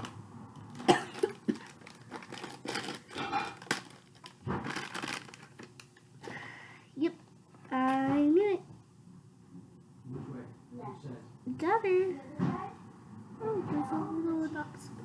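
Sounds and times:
foil packet crinkling and tearing: 0.0 - 6.1.

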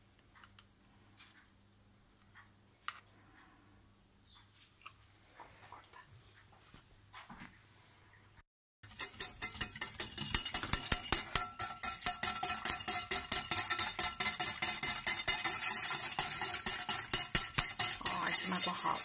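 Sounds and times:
whisk clicking against saucepan: 8.8 - 19.0.

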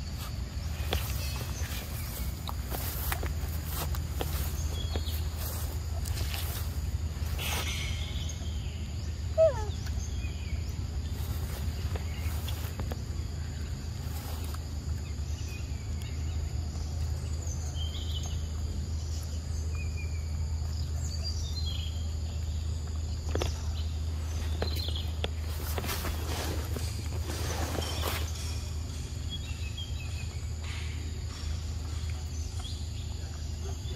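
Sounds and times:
bird chirps: 0.0 - 33.9
steady low hum: 0.0 - 33.9.

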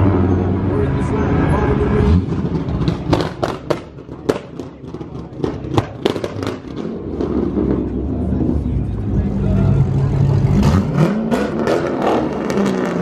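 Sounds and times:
engine low rumble: 0.0 - 13.0
car exhaust popping and banging: 2.3 - 7.9.

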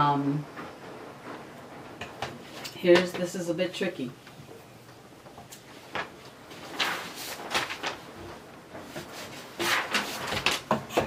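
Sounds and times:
paper sheets rustling and sliding: 5.6 - 11.0.

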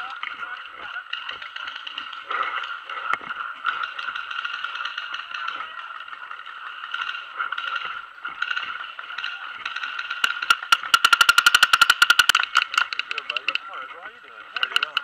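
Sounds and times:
paintball marker firing: 6.9 - 13.6.

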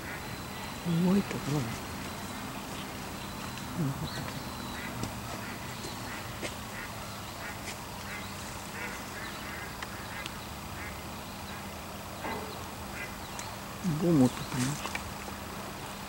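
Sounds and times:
distant ducks quacking: 0.0 - 16.0.

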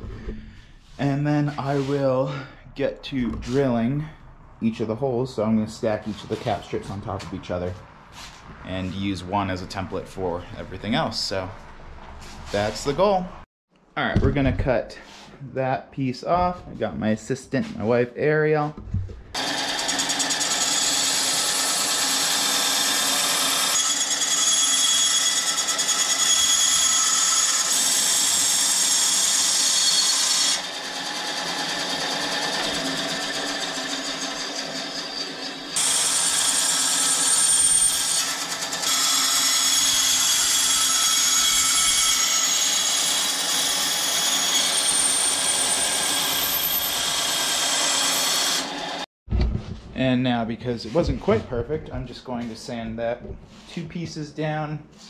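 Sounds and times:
power saw cutting metal: 19.4 - 49.1.

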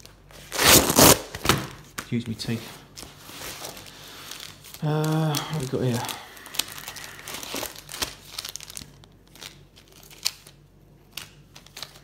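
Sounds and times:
plastic packets crinkling: 3.4 - 12.0.

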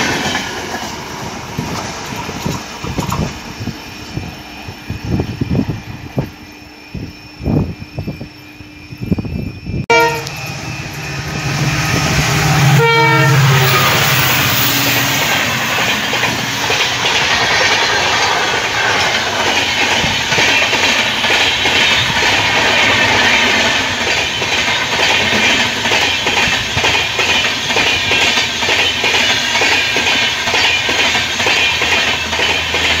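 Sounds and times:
wheels clacking over rail joints: 0.0 - 3.8, 13.6 - 33.0
passenger train passing at speed: 0.0 - 33.0.

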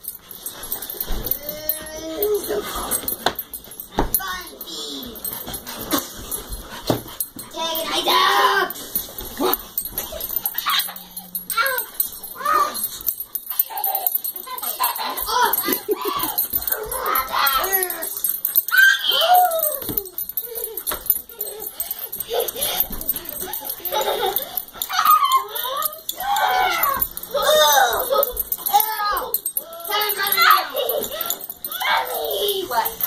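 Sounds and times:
light metallic jingling: 0.0 - 33.0
dogs whining: 8.3 - 33.0.

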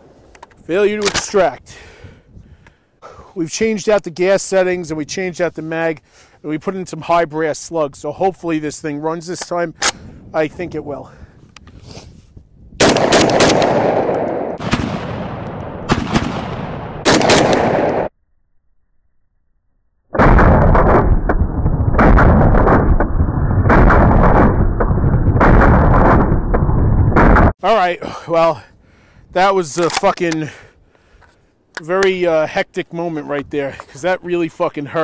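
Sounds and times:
shotgun shots with echo: 12.8 - 18.1.

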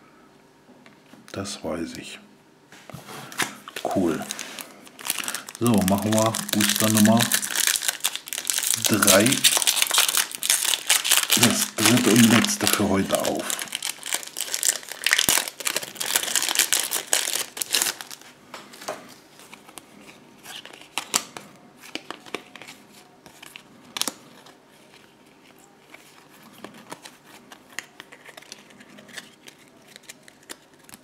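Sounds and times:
cards clicking and rustling: 3.4 - 18.2, 19.4 - 31.0
foil wrapper tearing and crinkling: 3.8 - 18.3, 26.6 - 31.0.

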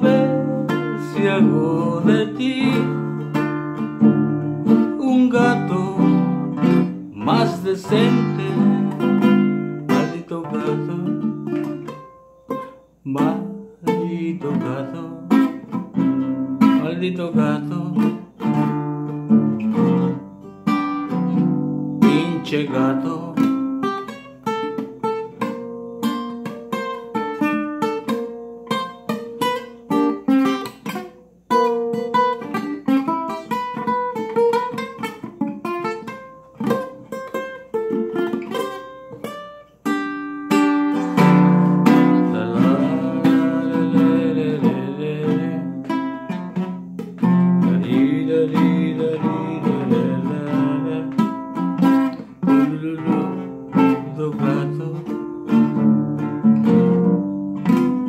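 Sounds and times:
acoustic guitar playing: 0.0 - 58.0.

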